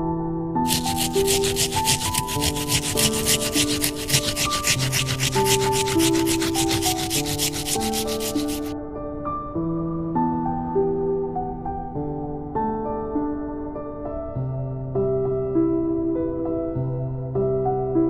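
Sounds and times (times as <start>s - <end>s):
egg grating rasping strokes: 0.7s - 8.7s.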